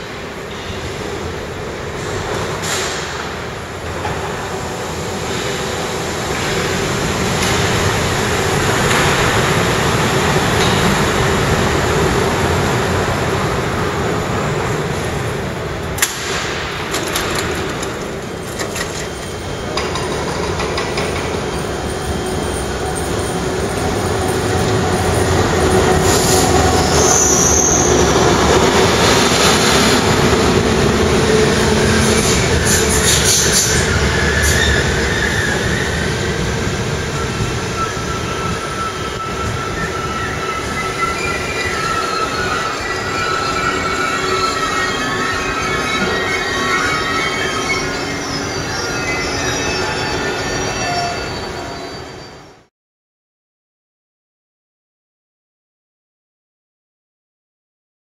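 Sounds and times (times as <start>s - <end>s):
suspended train running: 0.0s - 52.7s
steel wheels squealing on rail: 16.2s - 52.7s.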